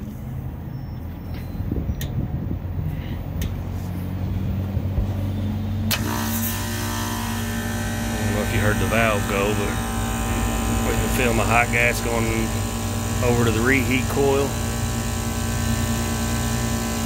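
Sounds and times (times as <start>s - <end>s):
hvac unit humming: 0.0s - 17.0s
valve clicking: 5.9s - 8.1s.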